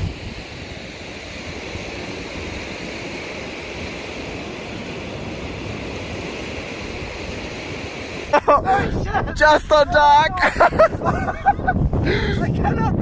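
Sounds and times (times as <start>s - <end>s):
water churning from canal outlet: 0.0s - 10.1s.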